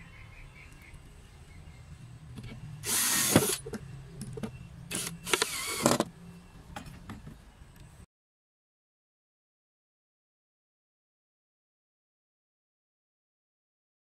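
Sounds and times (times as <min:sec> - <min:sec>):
cordless drill driving screws: 0:02.8 - 0:03.6, 0:04.9 - 0:06.1.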